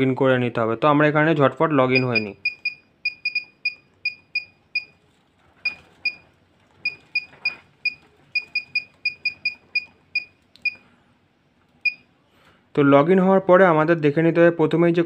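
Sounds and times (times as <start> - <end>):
keypad beeps: 1.9 - 5.0, 5.6 - 10.9, 11.8 - 12.1.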